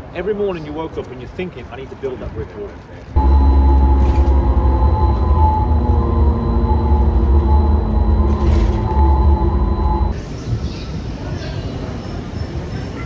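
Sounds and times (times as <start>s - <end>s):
bus drivetrain rumble: 2.9s - 10.4s
steady whining tones: 3.2s - 10.2s.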